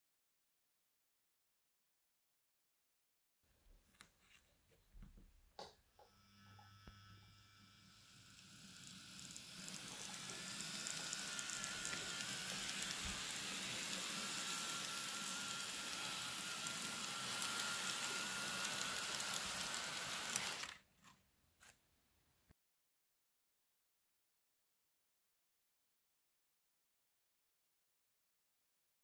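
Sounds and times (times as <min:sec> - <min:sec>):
faint motor whine: 0:05.6 - 0:20.8
model train wheels rattling: 0:08.4 - 0:20.8.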